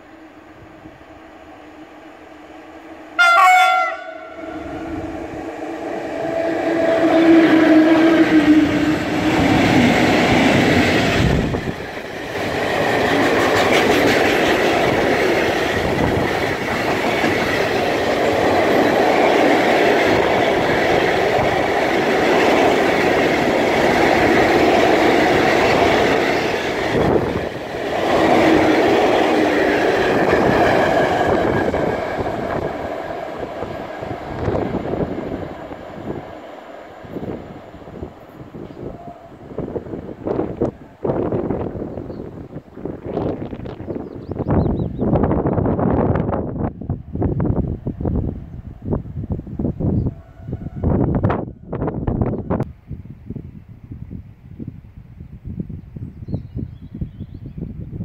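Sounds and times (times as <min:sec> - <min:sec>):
locomotive passing: 0:00.2 - 0:52.6
locomotive horn blast: 0:03.2 - 0:05.1, 0:06.2 - 0:09.3
train wheels clattering over rail joints: 0:09.2 - 0:33.0.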